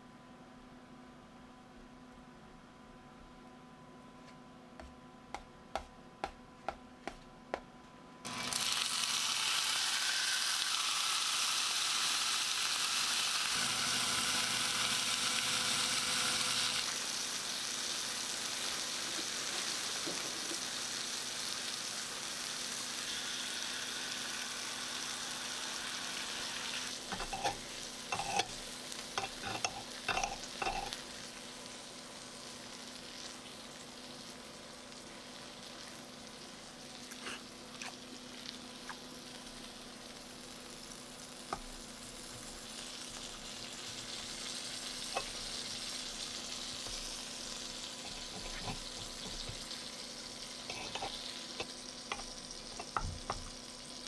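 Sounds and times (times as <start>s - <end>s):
rice paddle tapping: 4.8s - 7.7s
steak sizzling on hot plate: 8.3s - 54.0s
fork clinking on plate: 28.2s - 28.6s, 29.2s - 31.0s, 50.7s - 51.2s.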